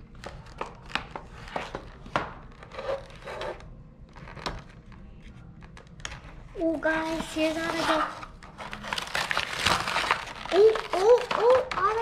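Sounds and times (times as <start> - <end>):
plastic packaging crinkling: 7.0 - 12.0.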